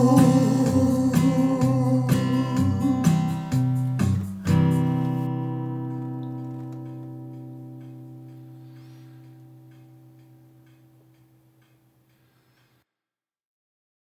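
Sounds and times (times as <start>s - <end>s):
strummed guitar: 0.0s - 11.1s.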